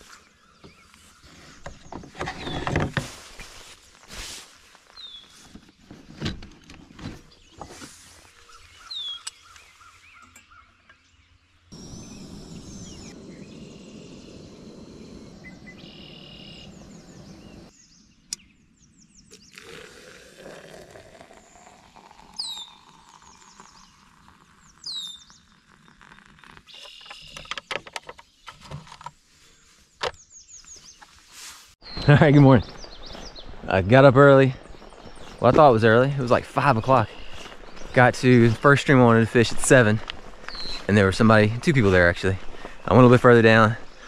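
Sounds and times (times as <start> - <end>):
bird chirping: 6.5 - 19.9, 21.2 - 31.2, 31.8 - 44.0.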